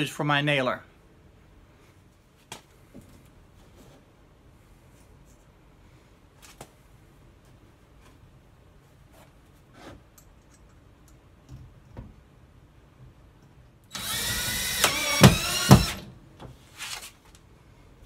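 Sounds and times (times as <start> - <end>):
cordless drill running: 13.9 - 16.1.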